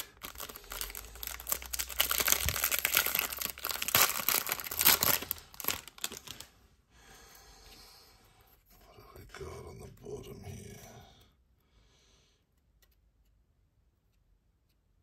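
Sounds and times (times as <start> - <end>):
foil wrapper tearing and crinkling: 0.0 - 6.5.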